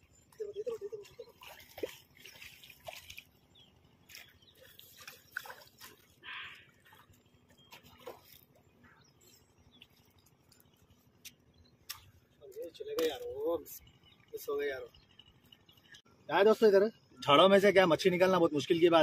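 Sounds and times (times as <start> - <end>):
water dripping: 0.1 - 8.6
fish splashing at surface: 1.3 - 3.4, 4.1 - 7.1.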